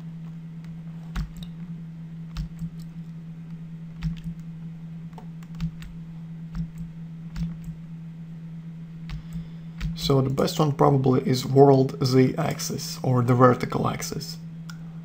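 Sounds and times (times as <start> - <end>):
steady low hum: 0.0 - 15.0
computer mouse clicking: 0.2 - 1.6, 2.3 - 3.2, 4.0 - 4.5, 5.1 - 7.8, 9.1 - 10.4.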